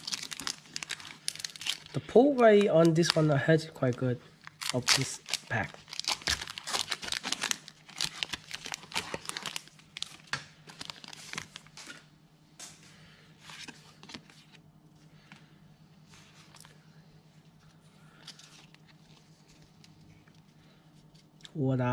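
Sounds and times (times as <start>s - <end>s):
card pack wrapper tearing and crinkling: 0.0s - 12.0s.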